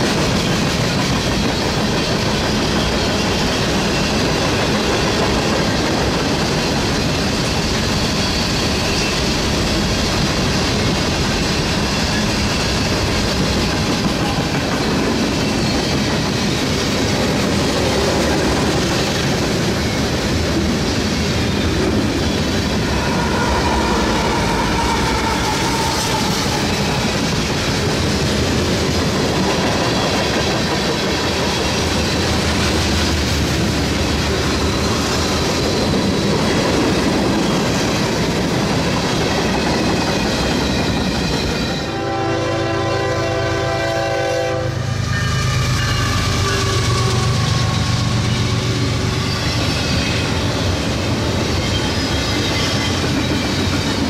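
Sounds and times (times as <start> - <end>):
freight cars rumbling on rails: 0.0 - 54.0.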